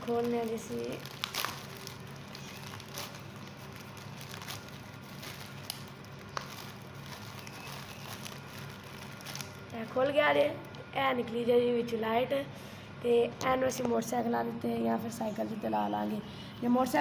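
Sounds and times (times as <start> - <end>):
plastic mailer bag crinkling: 0.0 - 10.1.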